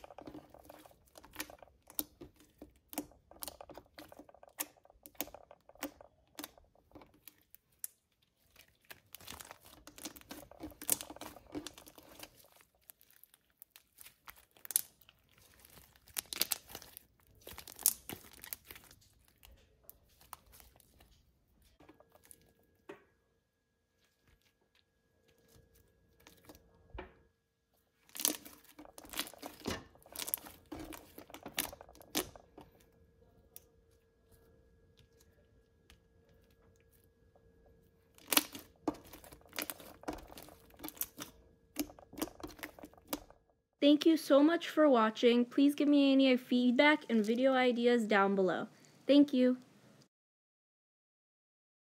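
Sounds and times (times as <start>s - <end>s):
slime squished by hand: 0.0s - 21.3s, 27.8s - 37.2s, 37.8s - 43.4s.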